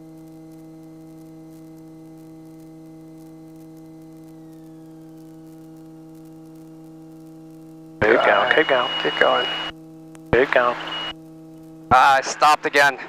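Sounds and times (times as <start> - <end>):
steady electrical hum: 0.0 - 13.0
faint high whine sliding down: 3.9 - 6.0, 8.0 - 9.7, 10.6 - 11.1.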